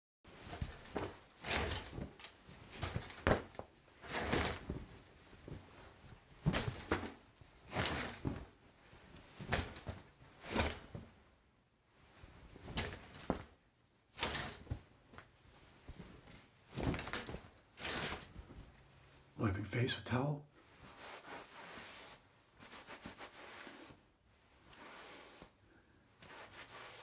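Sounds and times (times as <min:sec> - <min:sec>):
shower curtain sliding on rod: 0:00.3 - 0:08.6, 0:09.2 - 0:11.1, 0:12.2 - 0:13.5, 0:14.1 - 0:14.8, 0:16.2 - 0:18.6, 0:20.6 - 0:25.6, 0:26.2 - 0:27.0
towel rubbing on body: 0:20.6 - 0:27.0.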